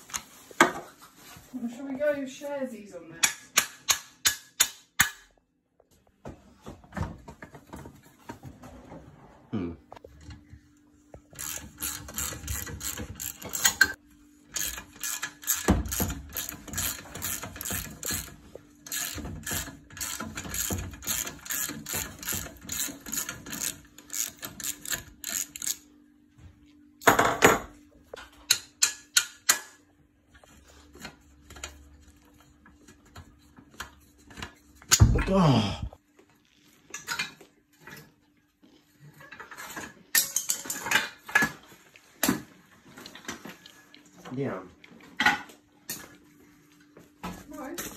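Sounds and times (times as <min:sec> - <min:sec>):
ratchet wrench clicking: 0:11.4 - 0:14.0, 0:14.6 - 0:18.3, 0:18.9 - 0:25.8.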